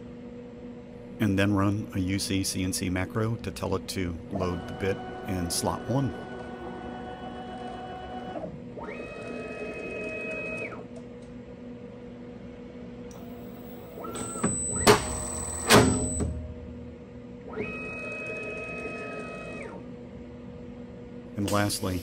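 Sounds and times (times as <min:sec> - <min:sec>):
spindle spinning up with high whine: 0:13.2 - 0:16.3
stepper motors whining: 0:13.2 - 0:16.4.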